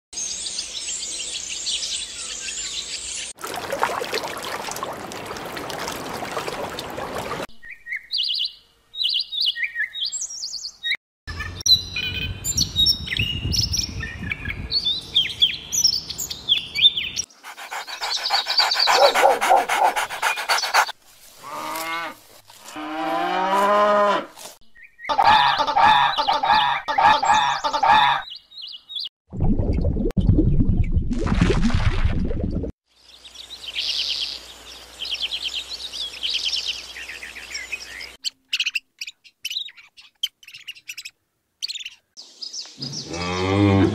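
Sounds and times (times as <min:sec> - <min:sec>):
bird chirps and song: 0:00.2 - 0:03.4, 0:07.6 - 0:20.9, 0:24.7 - 0:29.1, 0:33.0 - 0:43.6.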